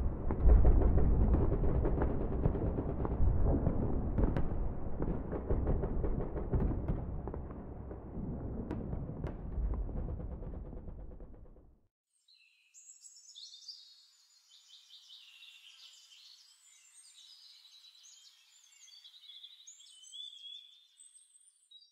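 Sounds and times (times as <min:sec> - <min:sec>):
deep rumble: 0:00.0 - 0:11.8
birds singing and chirping: 0:12.3 - 0:21.9.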